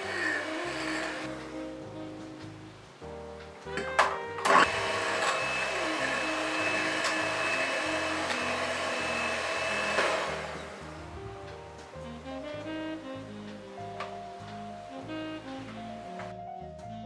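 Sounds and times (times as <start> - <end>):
hand mixer whirring: 0.0 - 1.3, 4.4 - 10.9
background music: 0.0 - 17.0.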